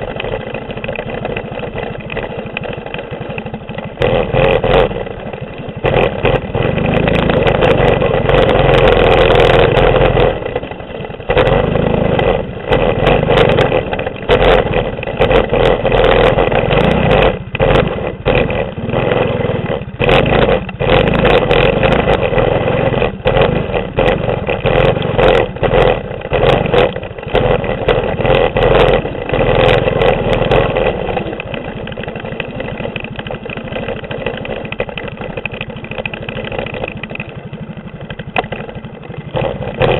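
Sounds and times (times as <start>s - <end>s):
bike rattling over rough ground: 0.0s - 39.9s
small engine revving: 0.0s - 39.9s.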